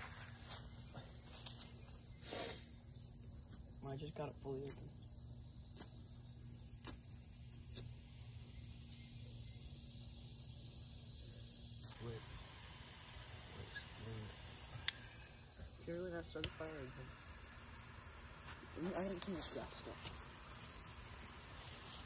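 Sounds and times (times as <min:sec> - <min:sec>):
insects droning: 0:00.0 - 0:22.0
sharp clicks: 0:14.6 - 0:15.1, 0:16.4 - 0:16.6.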